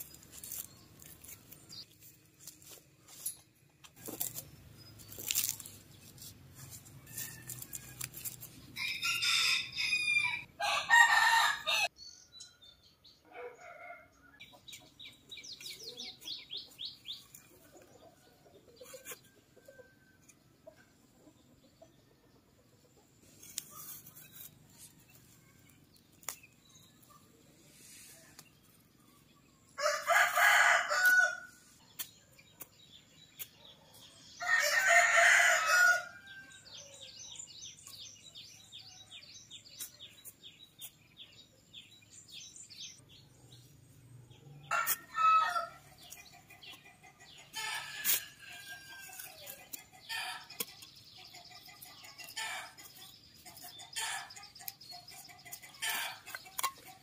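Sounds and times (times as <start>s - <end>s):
rooster crowing: 8.8s - 11.9s, 29.8s - 31.5s, 34.4s - 36.2s.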